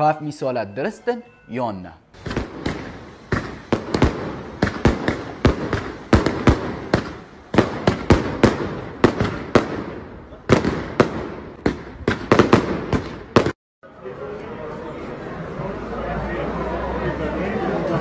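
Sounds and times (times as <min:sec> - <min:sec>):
loud sharp bangs with echo: 0:02.2 - 0:13.6.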